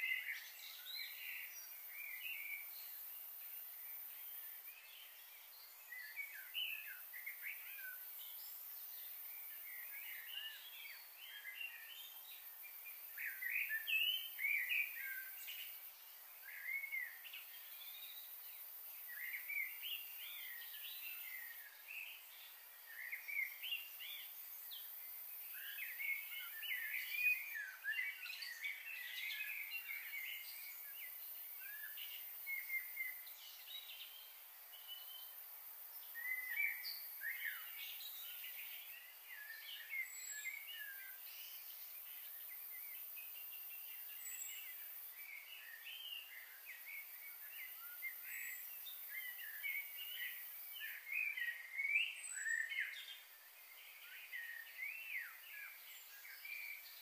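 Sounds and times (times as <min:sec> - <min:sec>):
small birds chirping: 0:00.0 - 0:57.0
steady high hiss: 0:00.0 - 0:57.0.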